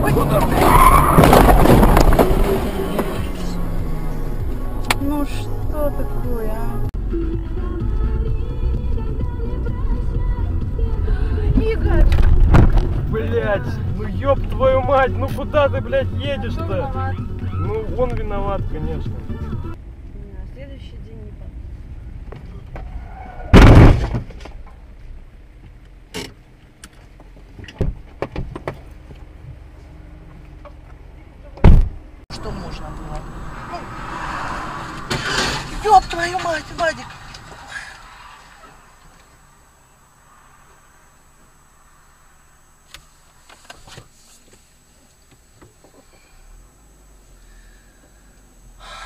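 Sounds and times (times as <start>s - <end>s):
car crash: 0.0s - 5.4s, 12.0s - 13.2s, 22.7s - 24.7s, 31.6s - 44.0s
car cabin hum: 0.0s - 19.8s.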